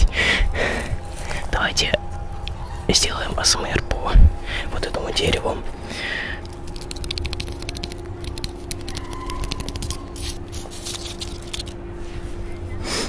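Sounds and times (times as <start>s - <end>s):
fingers scratching bark: 6.4s - 11.8s.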